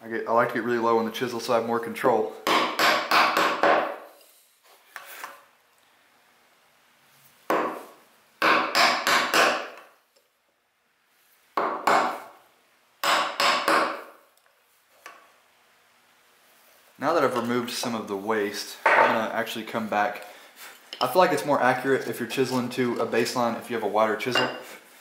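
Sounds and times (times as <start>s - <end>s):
wooden mallet striking chisel: 2.4s - 4.0s, 7.5s - 7.8s, 8.4s - 9.9s, 11.6s - 12.2s, 13.0s - 14.1s.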